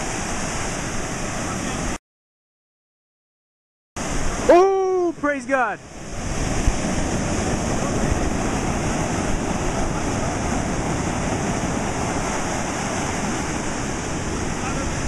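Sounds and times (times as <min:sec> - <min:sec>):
ocean surf breaking: 0:00.0 - 0:02.0, 0:04.0 - 0:15.0.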